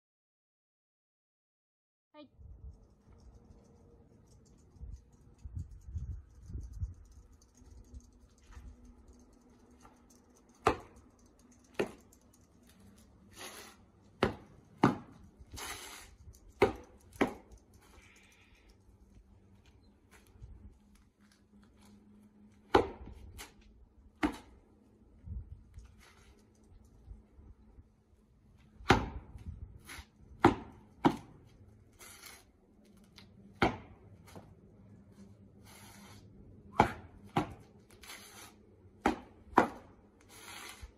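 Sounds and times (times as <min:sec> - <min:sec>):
scuffs and swishes: 0:34.1 - 0:36.9.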